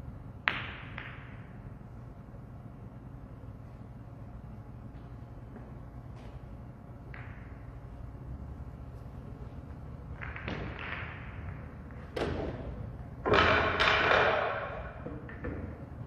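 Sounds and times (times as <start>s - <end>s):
pool balls clacking: 10.0s - 15.8s.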